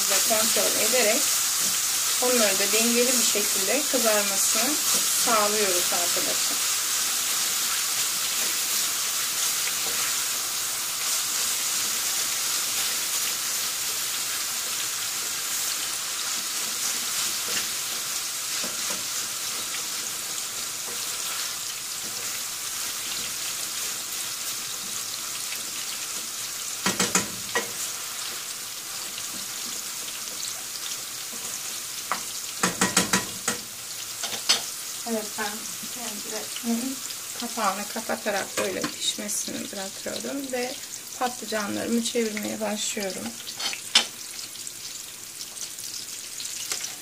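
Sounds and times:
eggplants deep-frying in oil: 0.0s - 47.0s
wooden spoon knocking pan: 26.8s - 27.7s, 32.1s - 33.6s.

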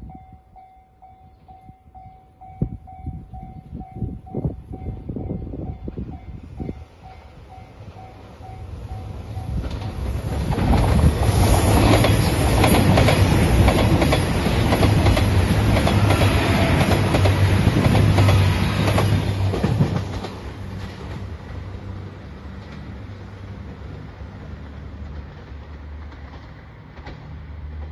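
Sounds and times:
diesel train passing: 0.0s - 27.9s
wheels clattering over rail joints: 9.6s - 21.6s.

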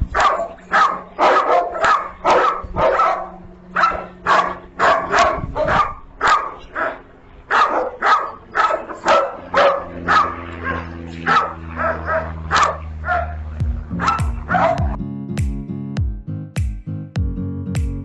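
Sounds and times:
dog barking: 0.0s - 15.0s.

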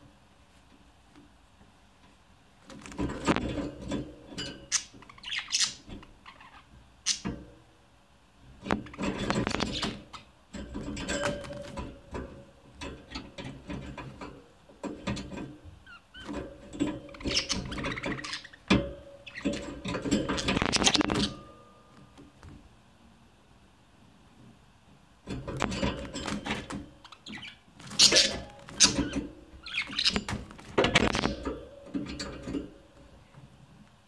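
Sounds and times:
budgerigars chattering: 27.1s - 30.3s.

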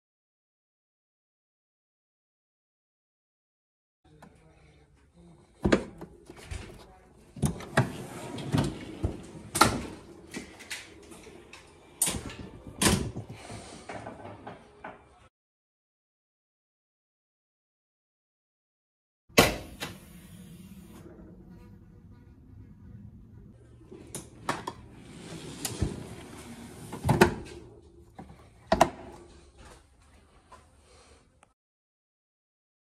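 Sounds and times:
slide rolling on metal runners: 7.5s - 12.7s, 23.9s - 27.8s.

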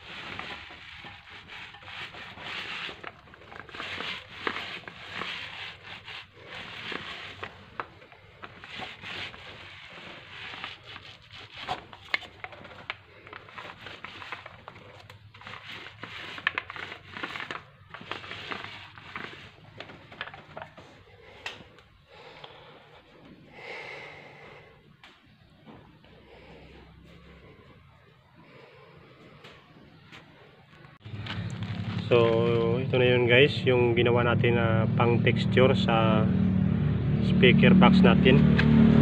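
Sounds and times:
paint roller rasping strokes: 0.0s - 20.1s.

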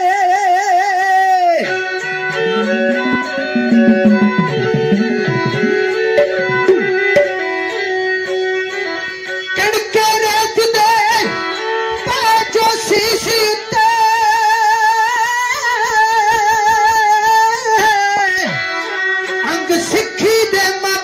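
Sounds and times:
steady drone: 2.1s - 7.0s
drum strokes: 2.1s - 7.4s.

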